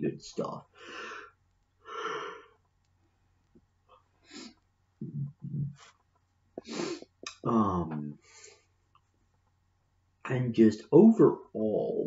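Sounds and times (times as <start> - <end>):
man breathing: 0.7 - 2.6, 4.2 - 4.6, 6.6 - 7.2, 8.2 - 8.7.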